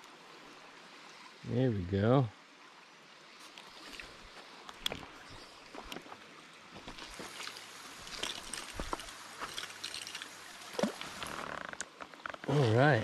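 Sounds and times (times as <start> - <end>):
stream running over shale: 0.0 - 13.0
water splashes: 3.3 - 13.0.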